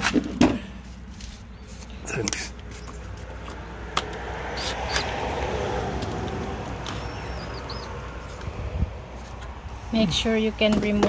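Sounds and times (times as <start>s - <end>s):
short high squeaks: 6.7s - 8.0s.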